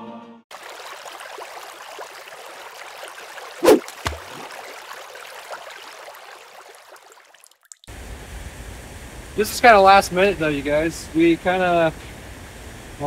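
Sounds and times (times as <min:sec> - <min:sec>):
trickling water: 0:00.5 - 0:07.9
loud sharp splash: 0:03.3 - 0:07.2.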